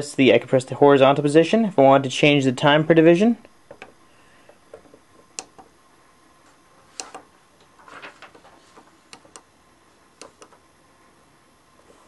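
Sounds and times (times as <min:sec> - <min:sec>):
push buttons clicking: 0:07.0 - 0:07.2, 0:09.1 - 0:09.5, 0:10.2 - 0:10.6.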